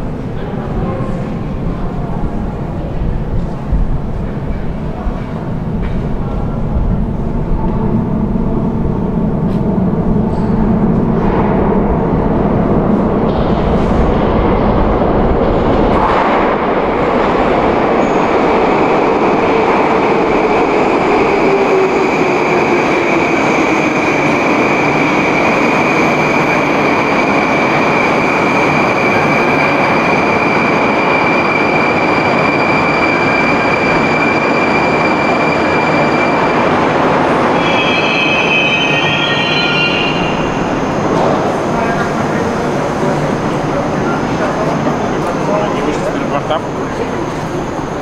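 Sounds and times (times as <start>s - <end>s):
train wheels rumbling on rail: 0.0s - 48.0s
high wheel squeal: 37.5s - 40.7s.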